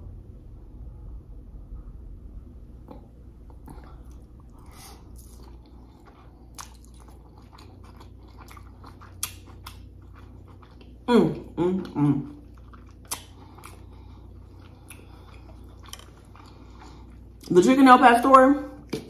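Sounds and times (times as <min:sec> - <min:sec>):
close-up chewing food: 0:03.5 - 0:17.6
wet mouth clicks and smacks: 0:08.4 - 0:09.9, 0:12.8 - 0:13.8.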